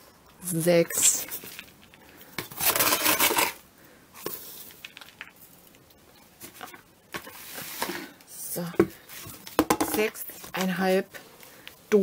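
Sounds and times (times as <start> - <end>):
can scraping plastic bucket: 2.5 - 3.6.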